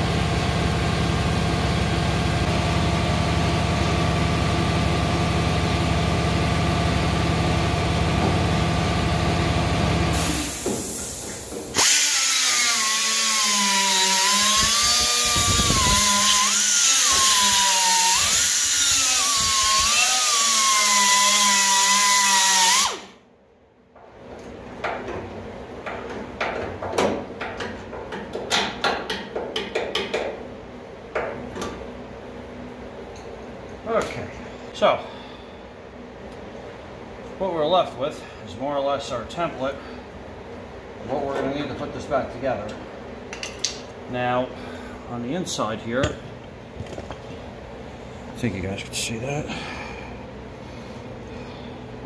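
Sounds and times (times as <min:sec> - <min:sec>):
air cutoff wheel whining: 0:00.0 - 0:21.1
steady low hum: 0:30.2 - 0:52.0.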